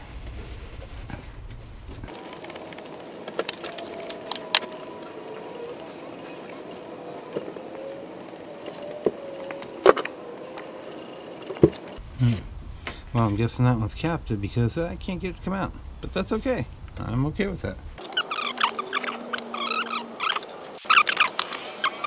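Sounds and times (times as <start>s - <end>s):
faint wavering hum: 0.0s - 12.8s.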